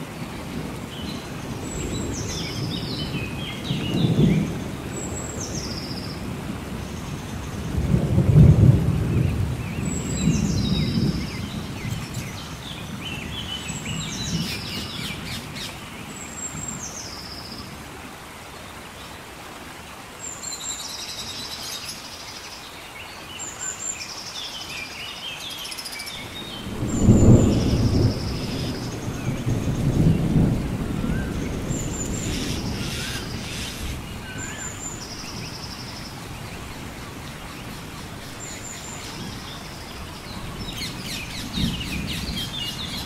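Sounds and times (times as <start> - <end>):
heavy rain: 0.0 - 43.0
thunder rumbling: 7.6 - 15.4, 26.2 - 34.4
birds calling: 31.2 - 43.0.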